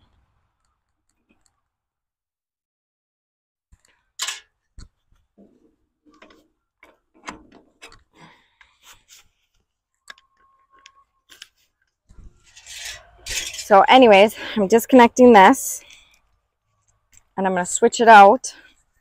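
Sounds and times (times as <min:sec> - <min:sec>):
steady squeak: 0:12.2 - 0:13.7
metal clicks clanks and scrapes: 0:12.4 - 0:13.7.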